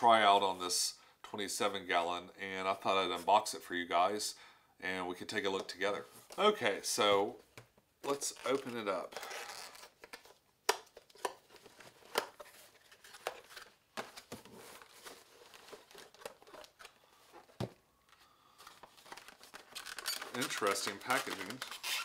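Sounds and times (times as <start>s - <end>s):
card rustling and scraping: 8.1s - 22.0s.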